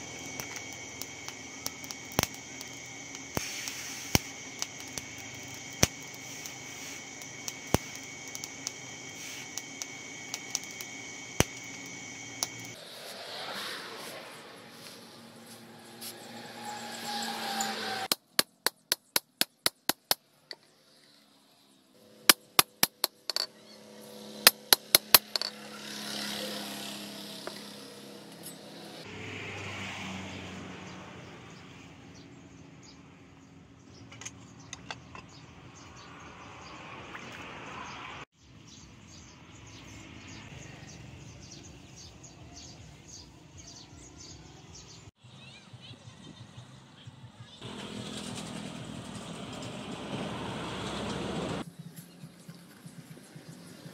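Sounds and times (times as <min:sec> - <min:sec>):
quiet work noise: 0:00.0 - 0:29.0
hammer striking blade on anvil: 0:24.4 - 0:25.7.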